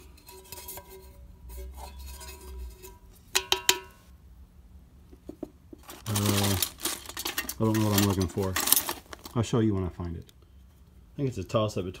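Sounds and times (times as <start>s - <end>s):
handling of a tin can: 0.0s - 4.0s, 5.1s - 10.2s.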